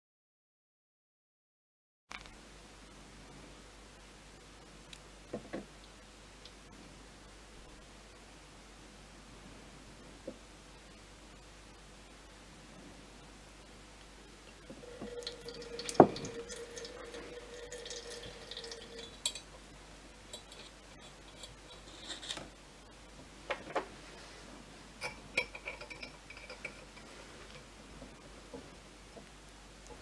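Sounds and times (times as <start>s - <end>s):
water trickling through funnel: 14.4s - 19.6s.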